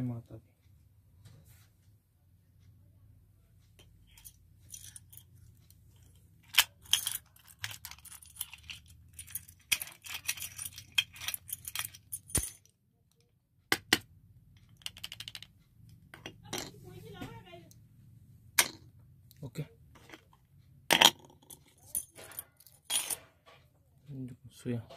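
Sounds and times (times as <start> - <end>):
keys jangling: 4.1 - 5.2, 5.9 - 12.6
metal padlock clinking: 4.1 - 12.7, 20.9 - 23.3.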